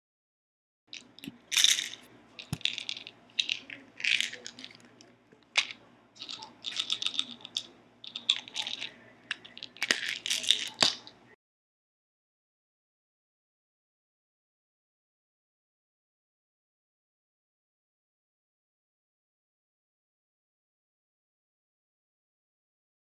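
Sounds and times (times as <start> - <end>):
pills rattling in bottle: 1.0 - 11.1
items clicking on stone countertop: 1.0 - 11.2.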